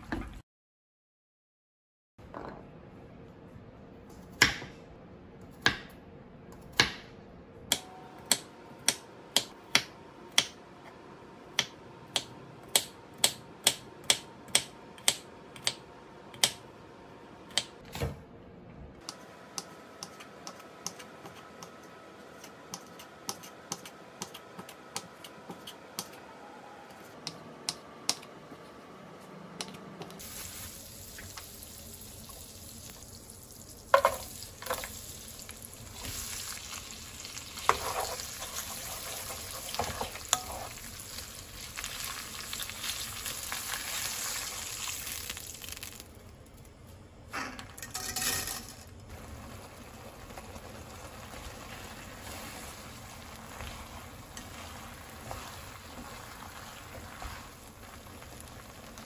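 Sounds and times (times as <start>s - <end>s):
frying sizzle: 30.2s - 46.1s, 49.1s - 59.0s.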